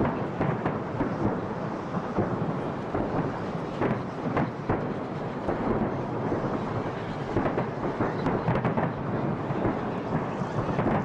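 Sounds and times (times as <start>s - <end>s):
fireworks bursting: 0.0s - 11.0s.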